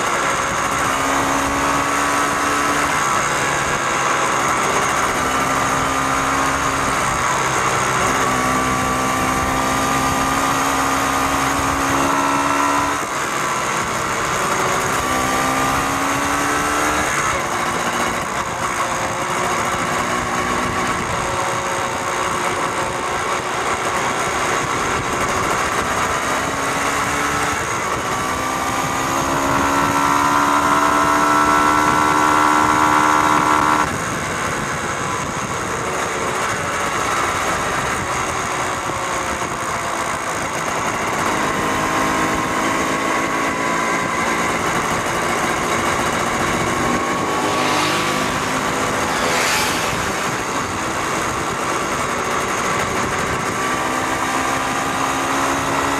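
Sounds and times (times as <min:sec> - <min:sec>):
small motorcycle engines: 0:00.0 - 0:55.9
wind noise: 0:00.0 - 0:55.9
short rushes of noise: 0:47.4 - 0:50.9.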